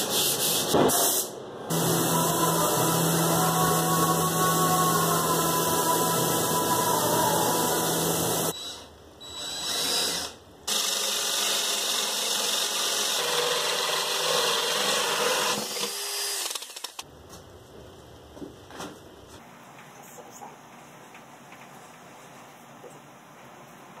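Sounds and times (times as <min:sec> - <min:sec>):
power drill boring into panel: 0:07.5 - 0:17.0.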